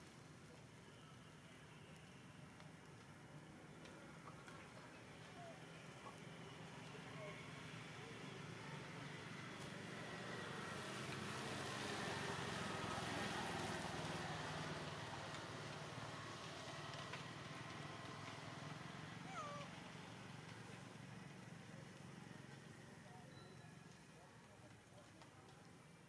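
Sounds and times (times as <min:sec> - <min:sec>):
macaque calls: 0:19.3 - 0:19.7.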